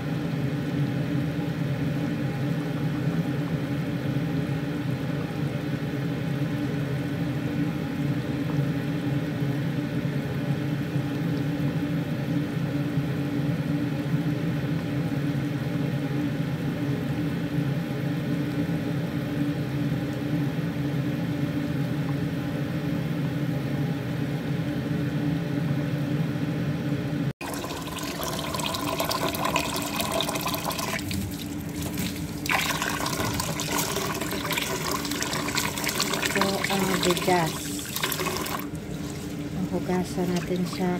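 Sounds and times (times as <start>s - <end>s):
pot boiling on gas stove: 0.0s - 21.7s, 27.4s - 40.9s
tap water running into metal bowl: 27.4s - 40.9s.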